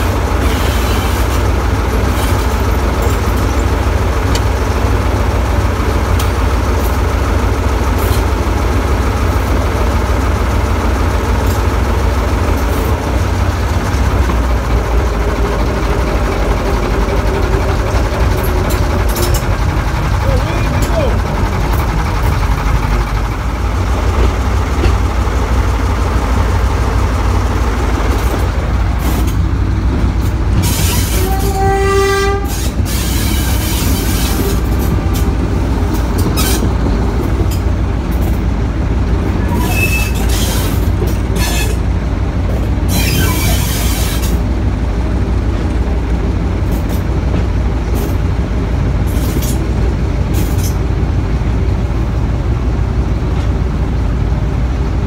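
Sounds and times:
diesel locomotive engine rumble: 0:00.0 - 0:55.0
train wheels clicking on track: 0:00.0 - 0:55.0
locomotive horn blast: 0:30.9 - 0:32.9.

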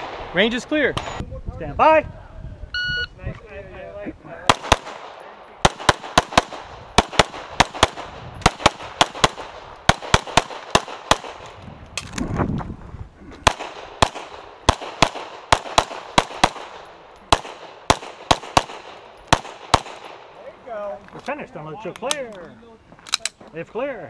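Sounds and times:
pistol shots: 0:04.5 - 0:11.6, 0:13.4 - 0:20.3.

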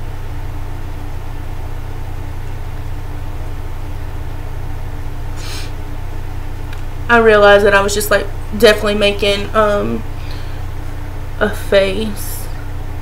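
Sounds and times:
low mechanical hum: 0:00.0 - 0:13.0
brief hiss: 0:05.4 - 0:05.7.

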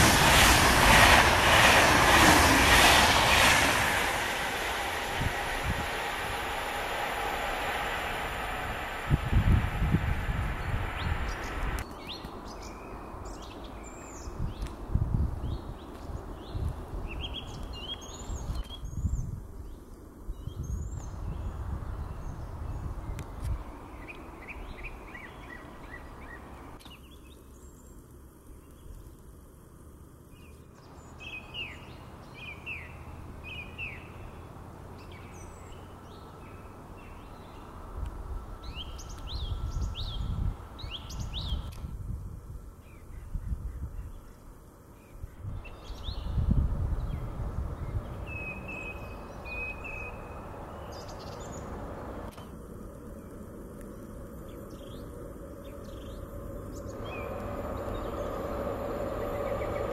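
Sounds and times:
freight train rumble: 0:00.0 - 0:15.5, 0:45.4 - 0:59.9
wind rumbling on microphone: 0:00.0 - 0:26.3, 0:35.3 - 0:59.9
songbirds chirping: 0:04.3 - 0:41.8, 0:42.7 - 0:59.9.

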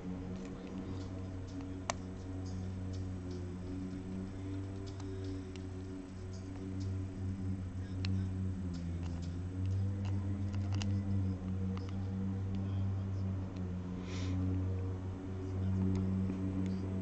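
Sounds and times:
low hum: 0:00.0 - 0:17.0
small clicks and taps: 0:00.3 - 0:07.0, 0:07.8 - 0:12.7.

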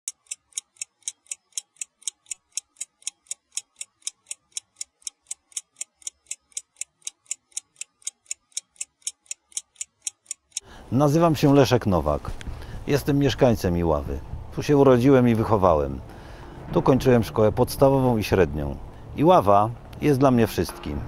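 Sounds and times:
high-pitched clock ticking: 0:00.1 - 0:10.7.

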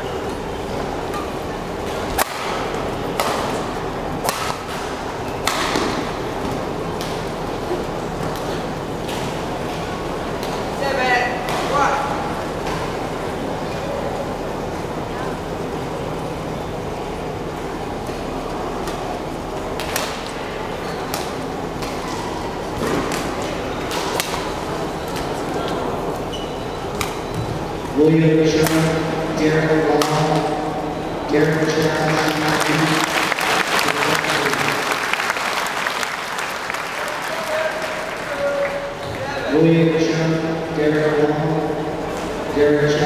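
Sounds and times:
crowd murmur: 0:00.0 - 0:43.0
badminton rackets hitting shuttlecock: 0:01.9 - 0:07.3.

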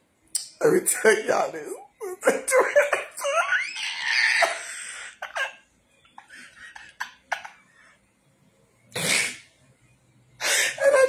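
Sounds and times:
woman laughing: 0:02.2 - 0:05.6, 0:06.2 - 0:07.6, 0:10.4 - 0:11.0.

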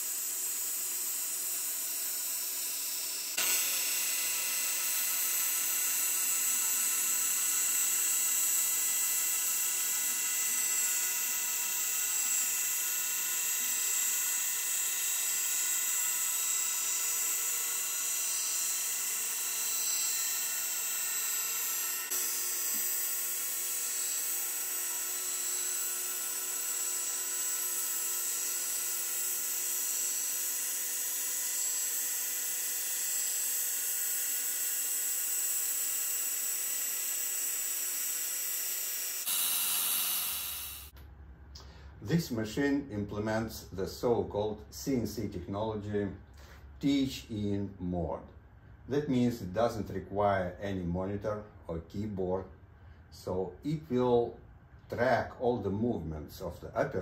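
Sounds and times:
belt grinder high whine: 0:00.0 - 0:41.0.

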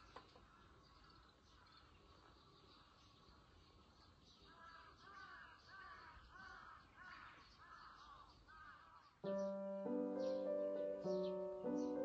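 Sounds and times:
faint chirping: 0:00.0 - 0:12.0
crow cawing: 0:04.5 - 0:09.0.

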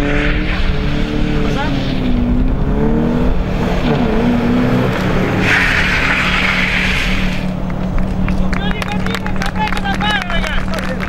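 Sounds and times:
car engine revving: 0:00.0 - 0:11.0
tyres squealing on asphalt: 0:03.7 - 0:11.0.

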